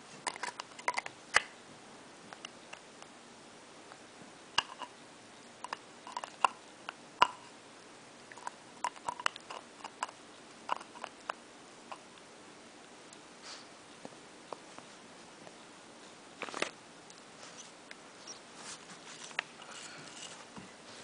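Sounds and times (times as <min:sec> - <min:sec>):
puppy chewing on a toy: 0:08.3 - 0:12.1.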